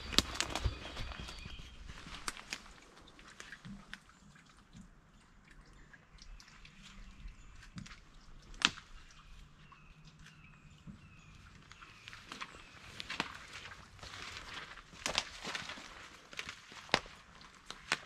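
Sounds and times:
footsteps on leafy ground: 0.0s - 2.9s, 12.3s - 17.1s
twig snapping: 15.0s - 15.6s, 16.3s - 18.0s.

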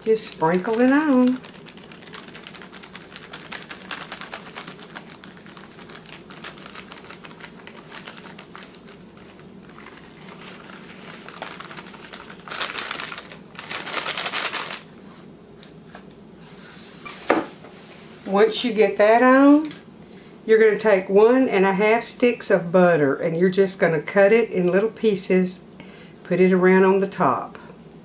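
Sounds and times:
plastic bag crinkling: 0.0s - 14.9s.

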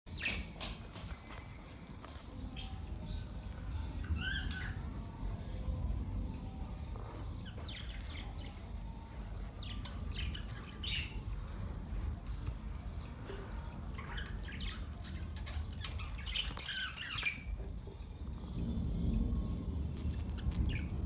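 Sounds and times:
budgerigars chirping: 9.6s - 11.6s, 12.2s - 19.2s
low rumble: 17.0s - 21.0s.

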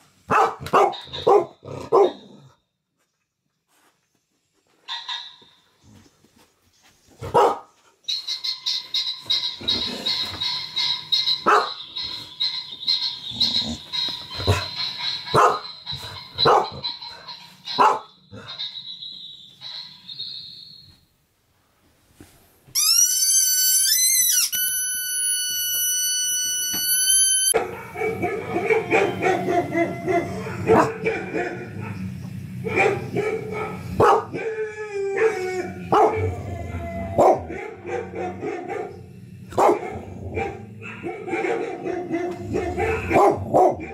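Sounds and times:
dog barking: 0.3s - 2.3s, 7.2s - 7.8s, 11.4s - 11.8s, 15.3s - 15.8s, 16.4s - 16.9s, 17.7s - 18.6s, 27.6s - 34.5s, 35.2s - 36.4s, 37.2s - 43.9s.

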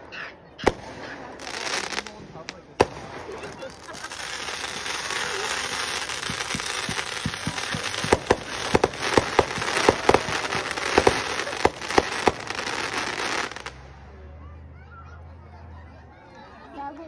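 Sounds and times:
firework pops: 0.6s - 13.8s
firework sparks hissing: 0.7s - 13.8s.

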